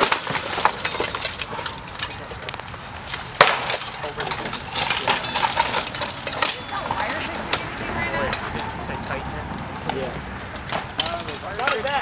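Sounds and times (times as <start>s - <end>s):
plate armour clanking: 3.4s - 7.2s.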